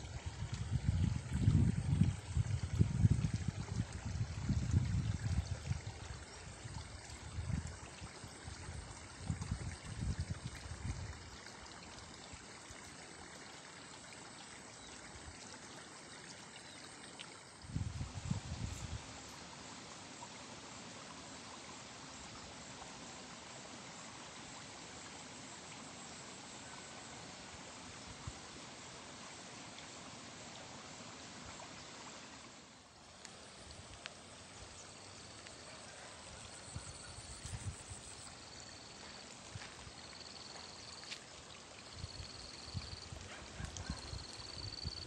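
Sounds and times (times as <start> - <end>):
running water rushing: 0.0 - 45.0
wind buffeting microphone: 0.2 - 6.2, 17.7 - 19.0.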